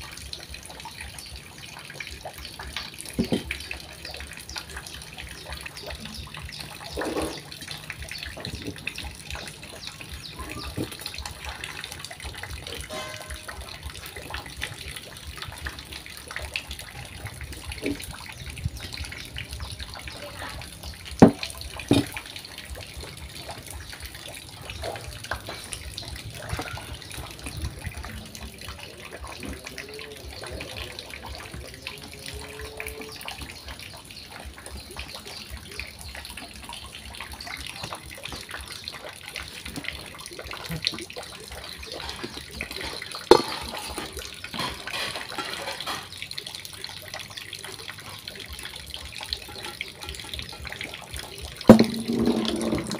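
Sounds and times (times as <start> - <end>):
scrapes in metal bowl: 51.7 - 52.9
sharp knocks: 51.7 - 52.9.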